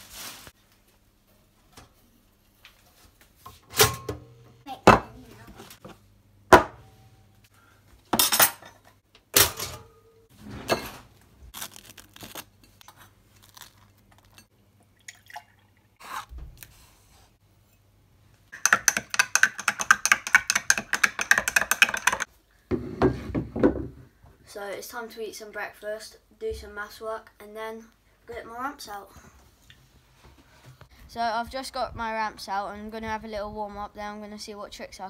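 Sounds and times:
crockery clattering on countertop: 0:08.1 - 0:09.9
milk pouring into glass: 0:15.0 - 0:15.8.

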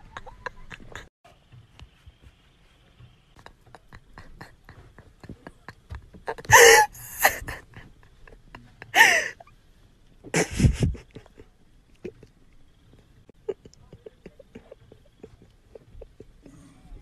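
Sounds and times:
person gasping wheezy laughter: 0:06.3 - 0:09.4, 0:10.3 - 0:12.2.

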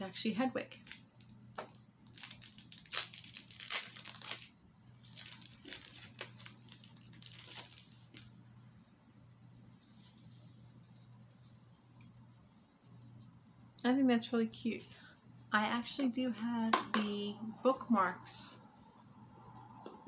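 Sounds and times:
plastic bag crinkling: 0:00.6 - 0:08.3.

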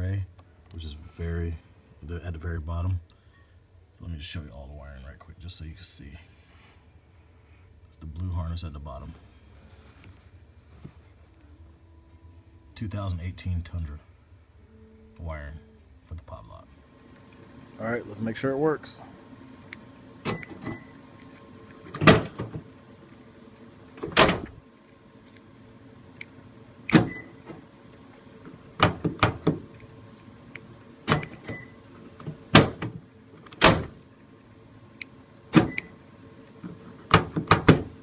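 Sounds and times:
tailgate lock clunking: 0:26.9 - 0:27.6, 0:32.5 - 0:34.0.

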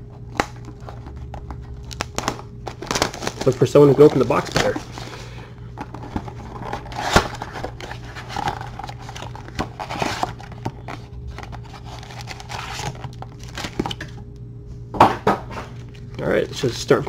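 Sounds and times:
cardboard box rustling and scraping: 0:05.8 - 0:13.1.

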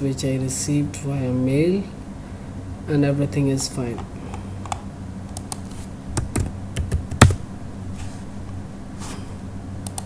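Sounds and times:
low electrical hum: 0:00.0 - 0:10.0
keyboard key taps: 0:06.2 - 0:07.4.

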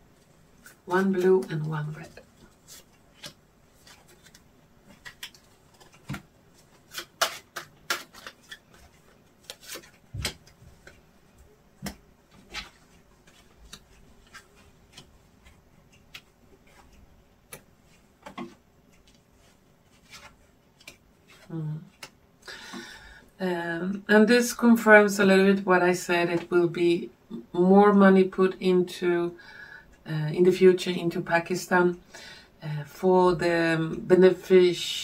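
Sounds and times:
cards shuffling: 0:00.6 - 0:11.0, 0:11.8 - 0:22.2.

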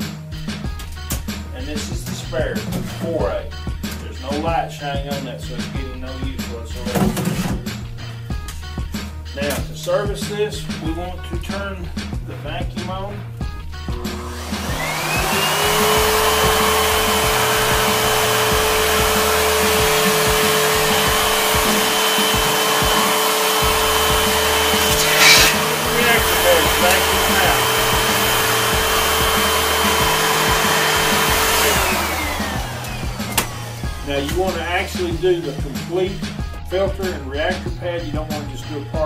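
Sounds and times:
vacuum cleaner motor whine: 0:13.9 - 0:34.9.

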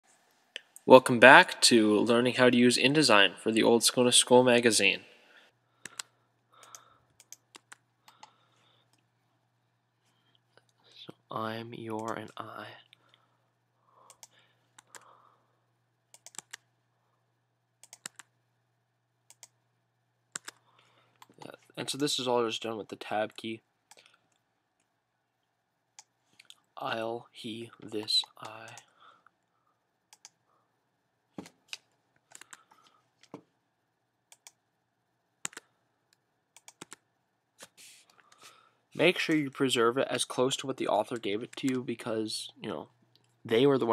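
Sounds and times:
keyboard keys clicking: 0:16.1 - 0:16.6.

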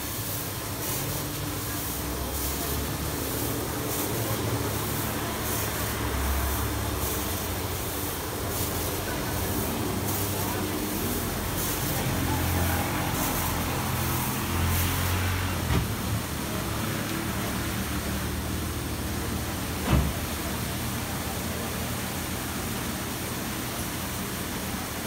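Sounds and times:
car wash brushes swishing: 0:00.0 - 0:18.1.

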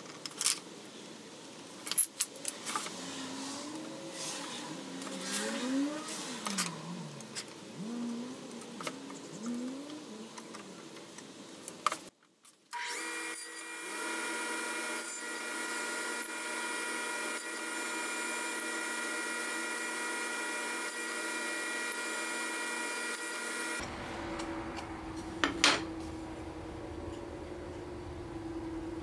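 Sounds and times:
table saw motor whining: 0:12.8 - 0:26.1.

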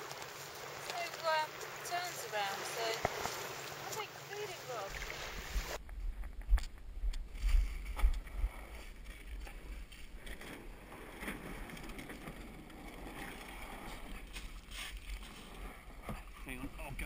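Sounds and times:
wind rumble on microphone: 0:05.3 - 0:17.0.

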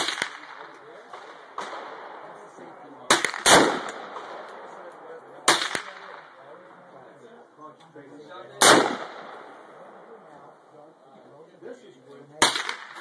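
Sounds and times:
rifle shots echoing: 0:00.0 - 0:06.5, 0:08.6 - 0:10.3, 0:12.4 - 0:13.0.

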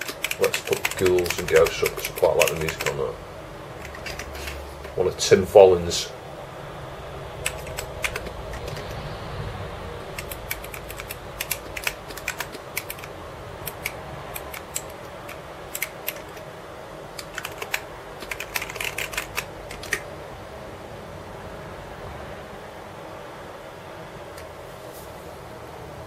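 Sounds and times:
keyboard keys clicking: 0:00.0 - 0:03.0, 0:03.8 - 0:05.0, 0:07.4 - 0:09.0, 0:10.1 - 0:13.1, 0:13.7 - 0:16.4, 0:17.2 - 0:20.1
steady background hum: 0:00.0 - 0:26.0.

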